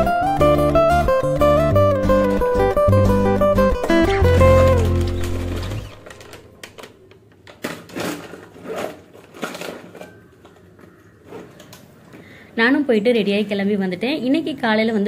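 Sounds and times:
background music: 0.0 - 6.3
handbag rustling: 7.7 - 11.7.

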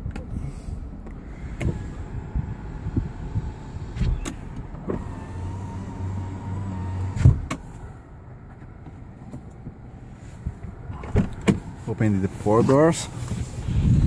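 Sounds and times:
power window motor humming: 1.2 - 7.8.

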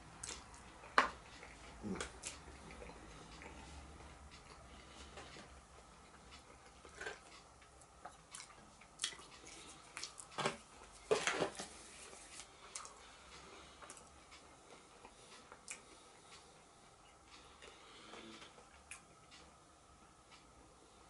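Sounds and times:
chewing and mouth noises: 0.2 - 11.4, 12.1 - 16.4.

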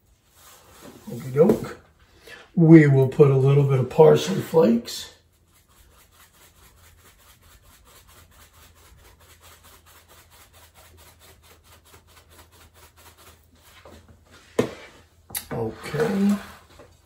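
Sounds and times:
faint rhythmic rubbing: 4.2 - 17.0.

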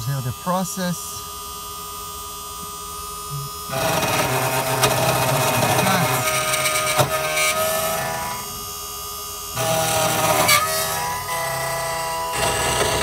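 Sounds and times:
key cutting machine whining: 0.0 - 13.0.

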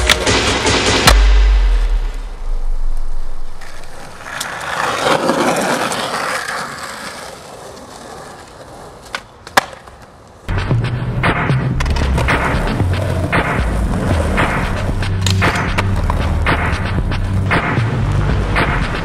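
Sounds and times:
skateboard clack: 0.0 - 1.2, 3.5 - 10.5, 11.2 - 18.0
music: 0.0 - 2.5, 10.5 - 19.0
skateboard wheels rolling on concrete: 2.9 - 19.0.

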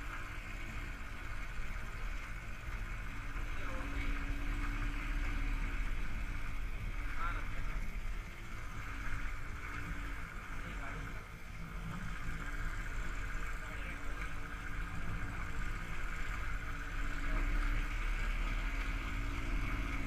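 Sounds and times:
road noise: 0.0 - 20.0.

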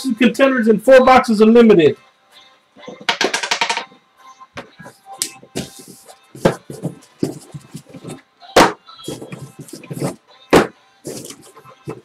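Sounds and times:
music playing: 0.0 - 12.0
cardboard boxes knocking: 5.5 - 12.0
box thumping on table: 6.4 - 12.0
boxes scraping and sliding: 9.0 - 10.2, 11.1 - 12.0.

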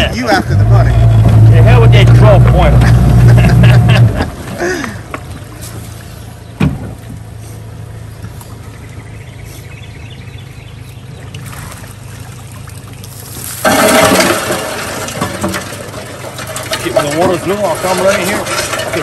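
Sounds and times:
outboard motor idling: 0.0 - 19.0
water draining from trap: 11.4 - 19.0.

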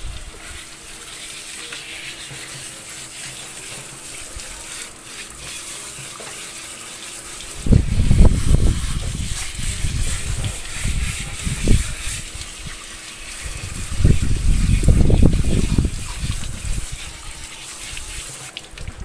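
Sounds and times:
hose spray nozzle hissing: 0.0 - 18.8
low splashing and rumbling: 7.6 - 12.8, 13.4 - 17.2.

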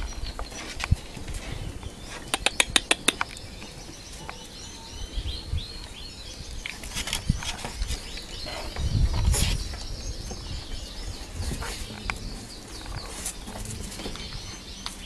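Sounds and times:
small birds chirping: 0.0 - 15.0
sharp clicks: 2.3 - 3.4.

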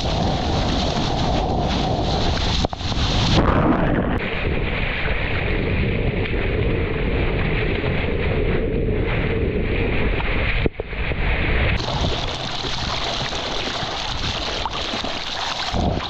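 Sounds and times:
ocean water rushing and splashing: 0.0 - 5.3, 11.2 - 16.0
wind buffeting microphone: 0.0 - 16.0.

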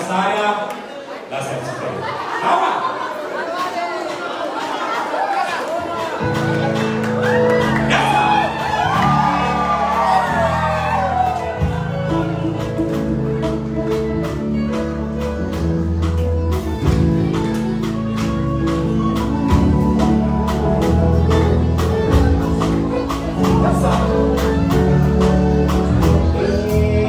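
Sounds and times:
live band playing: 5.8 - 27.0
person singing: 6.3 - 27.0.

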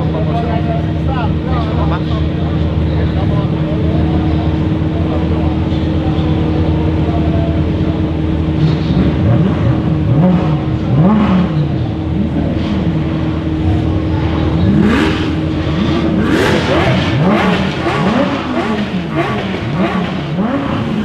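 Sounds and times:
supercar engines idling: 0.0 - 21.0
engine revving: 8.5 - 21.0.

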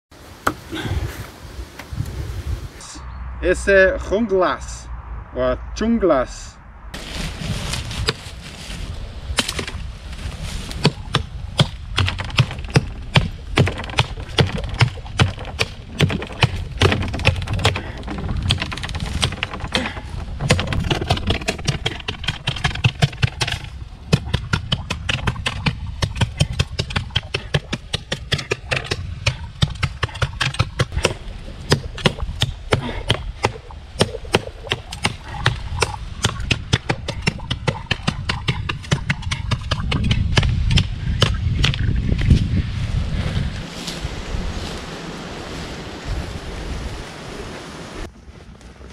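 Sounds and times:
knife chopping green wood: 10.8 - 41.8.

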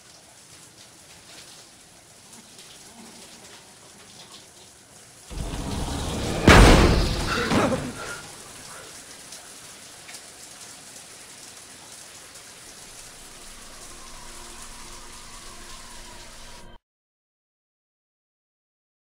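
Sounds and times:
loud sound: 5.3 - 8.6
shower spray hissing: 5.3 - 9.6, 12.3 - 16.8.

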